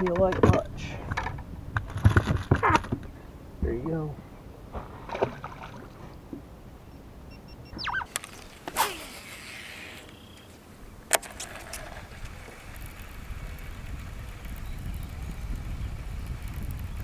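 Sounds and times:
fishing rod swishing through air: 0:07.8 - 0:10.2
reel line paying out hiss: 0:08.7 - 0:10.5.

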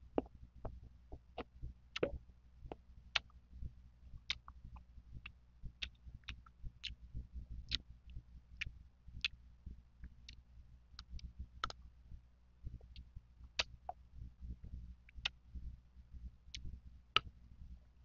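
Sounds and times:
soft low rumble: 0:00.0 - 0:18.0
chewing mouth clicks and smacks: 0:04.3 - 0:04.8, 0:11.0 - 0:11.8.

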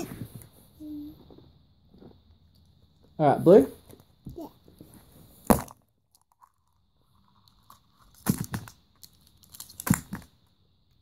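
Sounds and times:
crunching cracks: 0:05.5 - 0:10.4
egg cracking on floor: 0:05.5 - 0:10.4.

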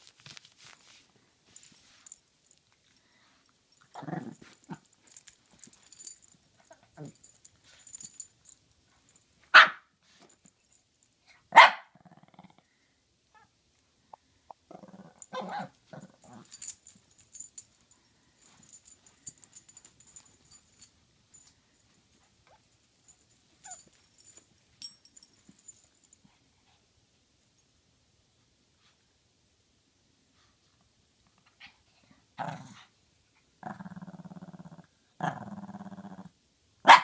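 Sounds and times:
dog barking: 0:09.5 - 0:09.9, 0:11.5 - 0:11.9, 0:15.3 - 0:15.7
dog growling softly: 0:12.0 - 0:12.8, 0:33.6 - 0:36.3.

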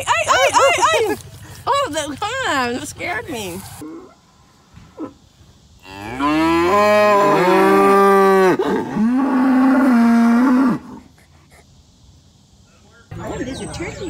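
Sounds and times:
cow mooing: 0:05.8 - 0:11.0.

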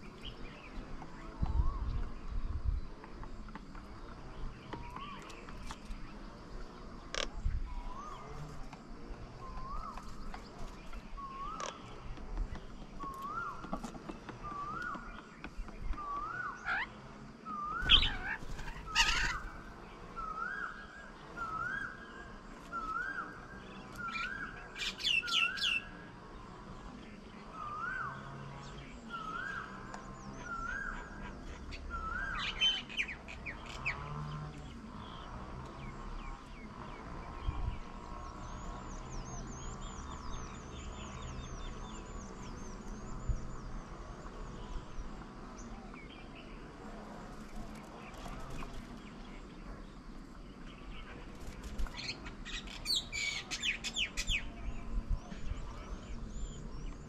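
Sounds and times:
faint high twittering: 0:00.0 - 0:57.0
harsh chattering squawks: 0:17.9 - 0:19.6.

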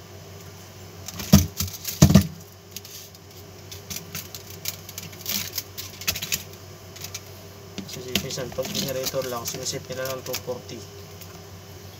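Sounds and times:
wire rustling and scraping: 0:01.1 - 0:10.6.

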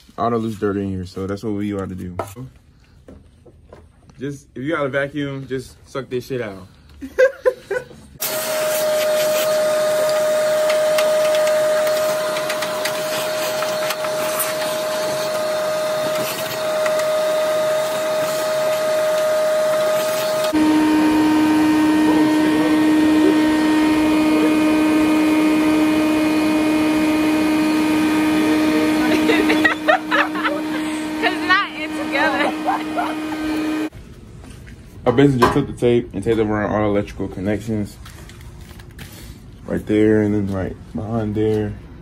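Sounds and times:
shop vacuum motor whine: 0:08.2 - 0:33.9.

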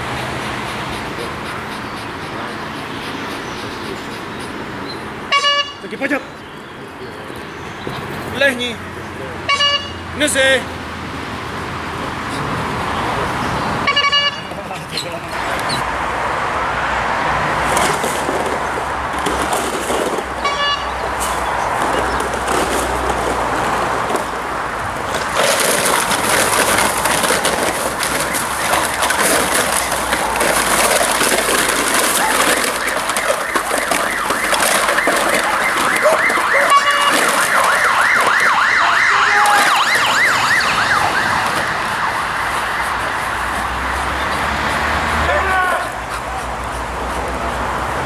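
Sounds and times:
plastic streamers rustling: 0:21.2 - 0:42.6
warbling siren-like tone: 0:32.7 - 0:43.5.

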